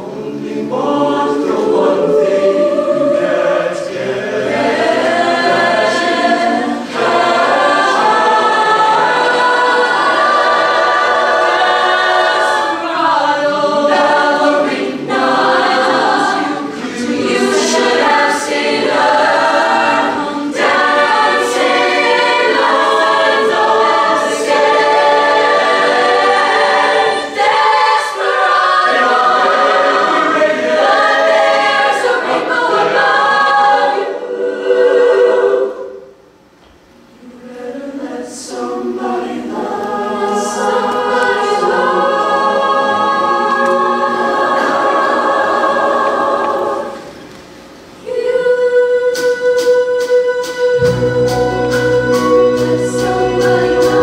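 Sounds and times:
choir singing: 0:00.0 - 0:36.3, 0:37.1 - 0:54.0.

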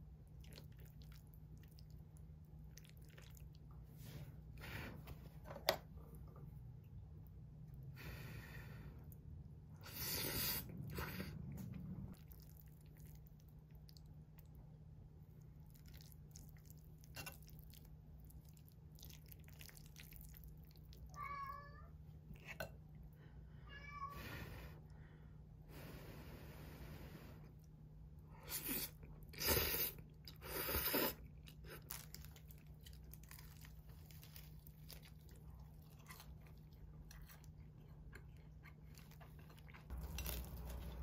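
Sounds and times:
chopsticks and chewing: 0:00.0 - 0:07.9, 0:09.0 - 0:14.6, 0:15.3 - 0:21.1, 0:28.4 - 0:41.0
cat meowing: 0:21.1 - 0:21.9, 0:23.6 - 0:24.2.

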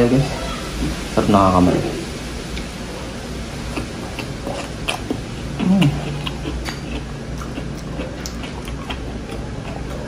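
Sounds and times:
steady low hum: 0:00.0 - 0:10.0
person chewing food: 0:02.5 - 0:10.0
wet mouth clicks: 0:03.7 - 0:10.0
person humming: 0:05.6 - 0:06.3.

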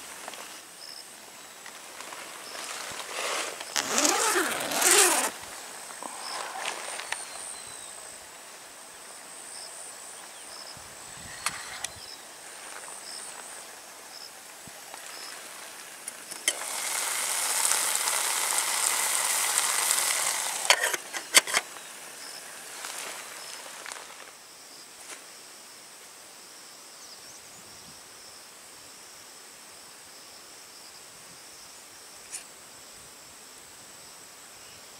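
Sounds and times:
food sizzling in a pot: 0:15.1 - 0:21.0.

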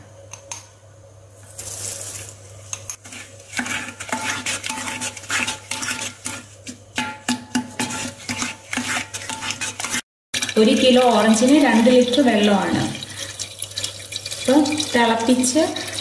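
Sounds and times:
spoon scraping ceramic jar: 0:01.5 - 0:06.4, 0:07.8 - 0:10.0
wooden spoon stirring thick pulp: 0:03.0 - 0:12.0.

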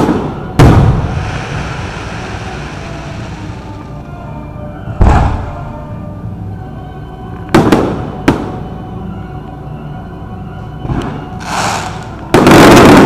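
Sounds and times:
fireworks booming: 0:00.0 - 0:04.0, 0:04.9 - 0:05.8, 0:10.9 - 0:13.0
fireworks cracking: 0:00.0 - 0:04.0, 0:11.4 - 0:13.0
music playing: 0:00.0 - 0:13.0.

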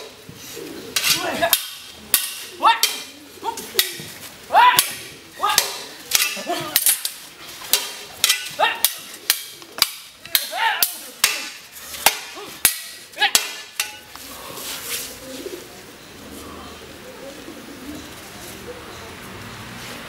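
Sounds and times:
person shouting: 0:04.5 - 0:05.7, 0:08.6 - 0:08.9, 0:10.4 - 0:11.1
wooden stick striking shield: 0:04.7 - 0:14.1.

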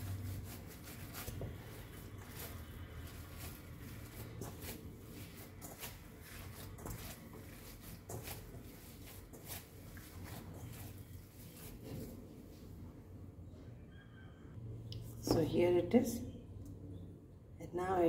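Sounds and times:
hands kneading dough: 0:00.0 - 0:12.8.

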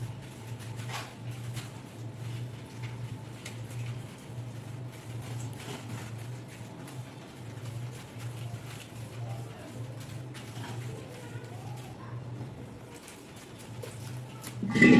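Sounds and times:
steady low hum: 0:14.6 - 0:14.9.

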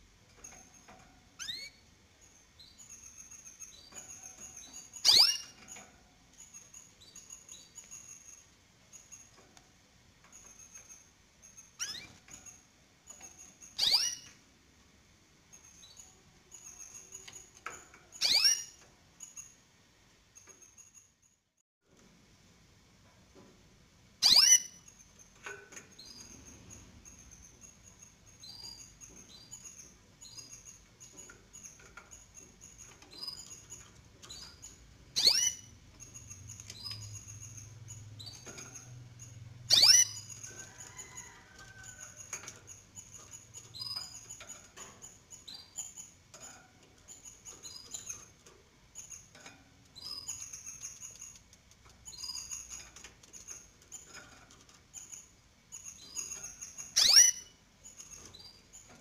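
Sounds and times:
nestlings cheeping: 0:00.5 - 0:09.4, 0:10.3 - 0:12.6, 0:13.2 - 0:14.4, 0:15.5 - 0:19.6, 0:24.2 - 0:51.4, 0:54.8 - 0:58.9
sharp bird calls: 0:05.0 - 0:05.6, 0:35.2 - 0:35.6, 0:39.7 - 0:40.2, 0:57.0 - 0:57.5.

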